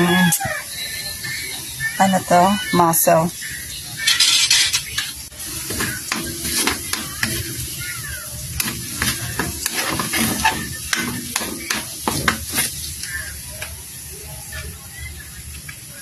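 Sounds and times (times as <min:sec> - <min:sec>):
spatula scraping in a wok: 0:04.2 - 0:13.0
sauce sizzling: 0:04.8 - 0:15.4
spatula knocking against pan: 0:05.7 - 0:07.6, 0:08.6 - 0:12.6.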